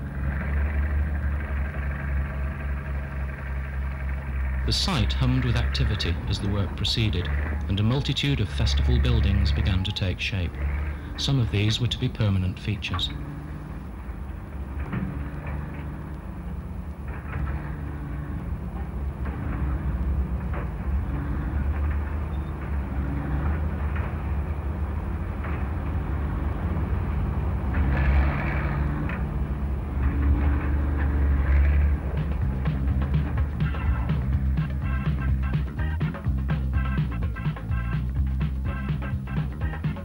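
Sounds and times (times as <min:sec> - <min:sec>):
heavy machinery engine rumble: 0:00.0 - 0:40.0
machinery knocks: 0:12.8 - 0:34.9.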